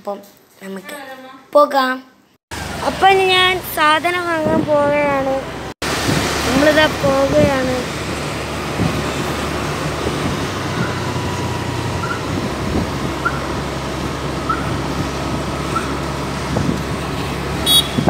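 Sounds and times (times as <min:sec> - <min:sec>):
vehicle engine and road noise: 0:02.5 - 0:18.0.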